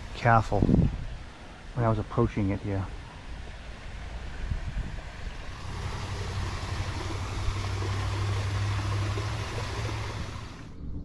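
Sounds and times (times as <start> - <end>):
motor humming: 2.9 - 10.8.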